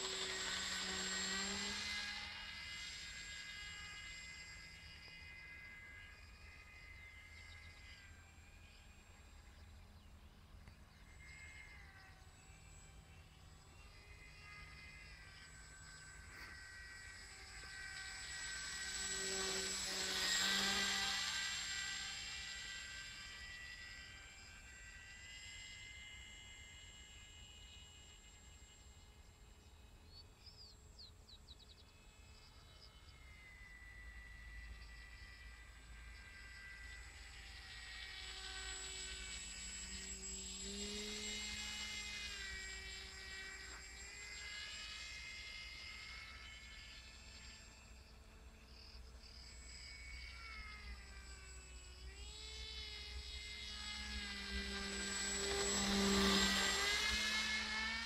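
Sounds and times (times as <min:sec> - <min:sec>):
model aircraft motor buzzing: 0:00.0 - 0:58.0.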